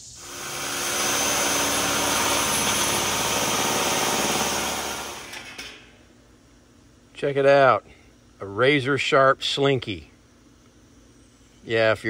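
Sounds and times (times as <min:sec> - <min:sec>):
power tool cutting metal: 0:00.0 - 0:05.8.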